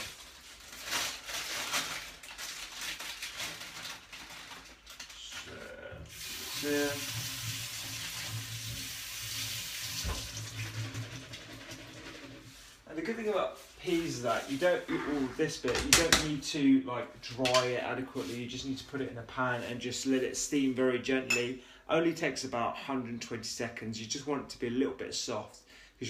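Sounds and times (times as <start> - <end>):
tap running into a sink: 6.1 - 11.1.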